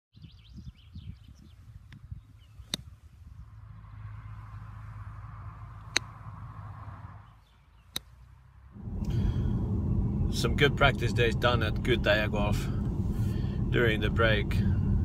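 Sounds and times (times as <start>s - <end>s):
birds chirping: 0.1s - 15.0s
golf club striking ball: 5.8s - 6.2s
steady low rumble: 8.6s - 15.0s.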